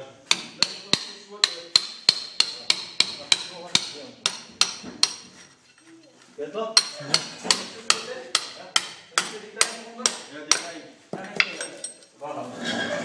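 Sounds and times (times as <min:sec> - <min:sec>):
hammer striking chisel: 0:00.3 - 0:05.4, 0:06.8 - 0:11.9.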